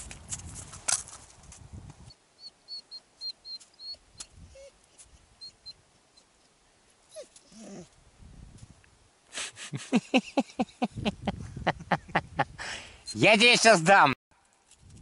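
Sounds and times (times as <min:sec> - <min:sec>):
dog whining: 0:02.4 - 0:04.8, 0:07.1 - 0:08.0.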